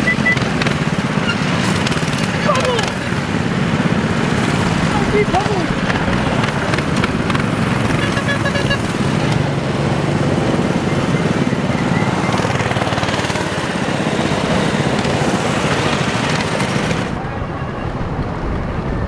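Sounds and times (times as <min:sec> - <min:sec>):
high beeps: 0:00.0 - 0:00.4
minibike engines running: 0:00.0 - 0:19.0.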